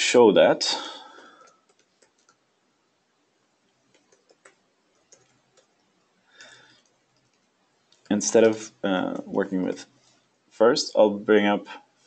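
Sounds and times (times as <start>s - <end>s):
computer keyboard clicks: 1.4s - 2.4s, 3.9s - 5.8s.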